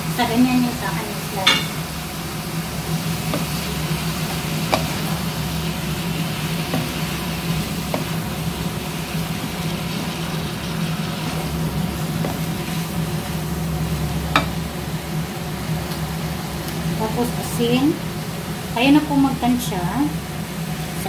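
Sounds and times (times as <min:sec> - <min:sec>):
food sizzling in a pan: 0:00.0 - 0:21.0
steady low hum: 0:00.0 - 0:21.0
wooden spoon knocking on pan: 0:03.3 - 0:03.6, 0:04.7 - 0:05.1, 0:06.7 - 0:07.2, 0:07.8 - 0:08.2, 0:12.2 - 0:12.5, 0:14.3 - 0:14.6.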